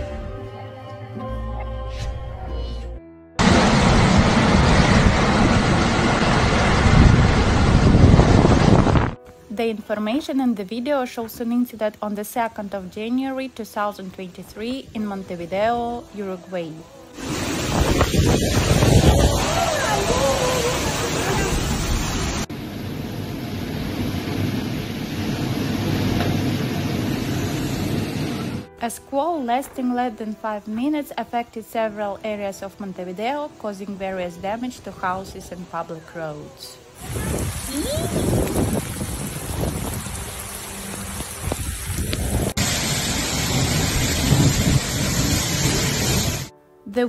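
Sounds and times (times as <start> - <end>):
heavy rain: 3.4 - 9.2, 17.1 - 28.7, 36.9 - 46.5
wind gusts buffeting microphone: 3.6 - 9.2, 17.3 - 21.9, 37.0 - 40.4, 41.2 - 42.7, 43.5 - 46.5.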